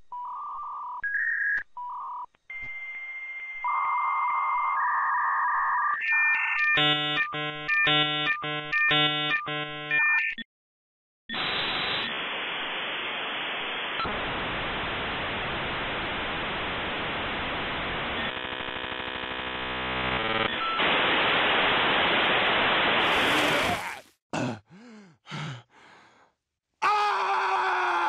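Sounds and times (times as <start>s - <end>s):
modem buzzing pattern: 6.8s - 10.0s, 16.9s - 23.6s.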